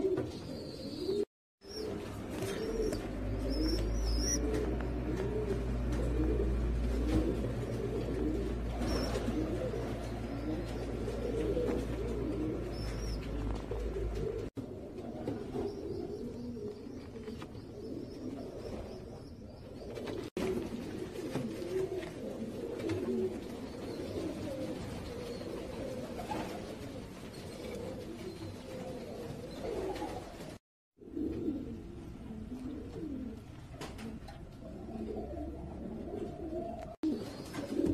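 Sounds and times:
pigeons cooing: 0.0 - 37.9
low hum: 1.6 - 14.6.

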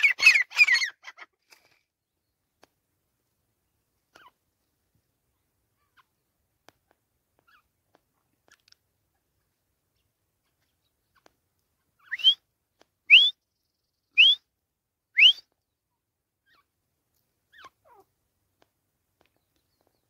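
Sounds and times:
francolin calling: 12.0 - 12.4, 13.1 - 13.4, 14.1 - 14.4, 15.2 - 15.5.

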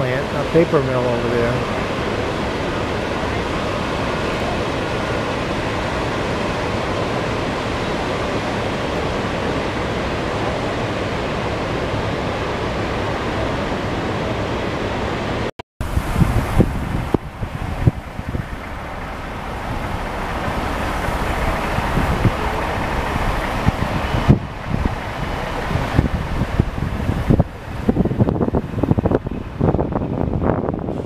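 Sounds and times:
whitewater rapids rushing: 0.0 - 31.0
wind buffeting microphone: 0.0 - 31.0.

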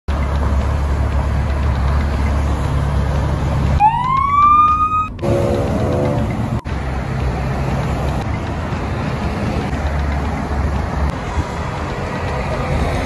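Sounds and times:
freeway traffic rushing past: 0.1 - 13.0
siren wailing: 3.8 - 6.1.

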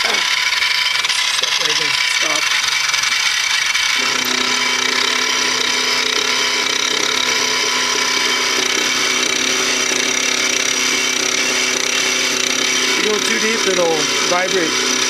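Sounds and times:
milling machine cutting metal: 0.0 - 15.0.

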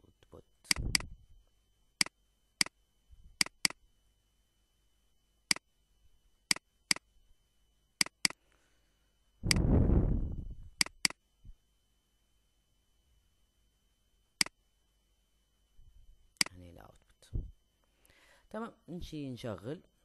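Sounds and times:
computer mouse clicking: 3.4 - 3.8, 8.0 - 8.4, 10.8 - 11.2.

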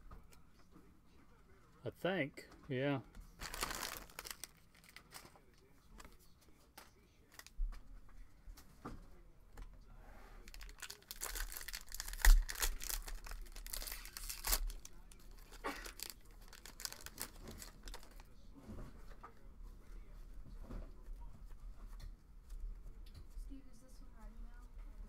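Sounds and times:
quiet rustles and clicks: 2.4 - 9.8
foil wrapper tearing and crinkling: 3.4 - 5.4, 10.4 - 18.3.

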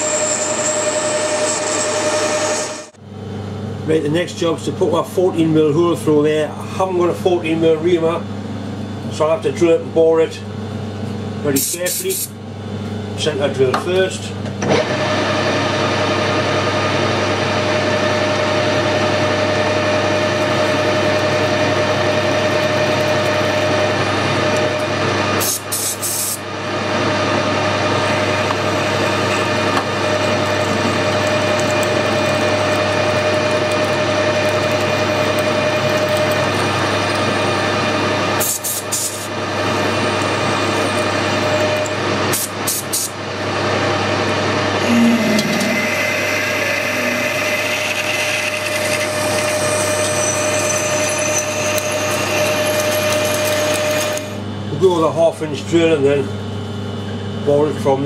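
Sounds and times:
lathe humming: 0.0 - 3.0, 14.6 - 25.4, 26.4 - 54.6
drill cutting aluminium: 17.4 - 24.9, 27.9 - 42.0, 45.3 - 54.4.

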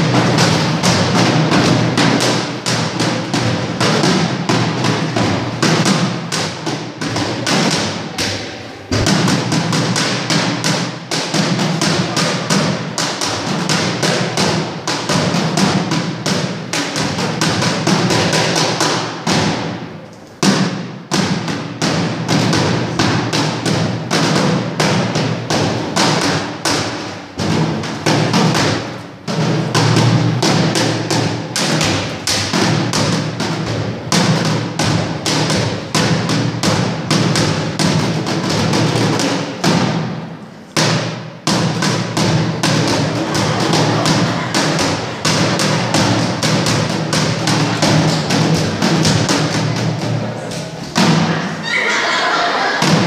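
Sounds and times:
fast driving drumming: 8.9 - 19.6, 40.8 - 50.4.

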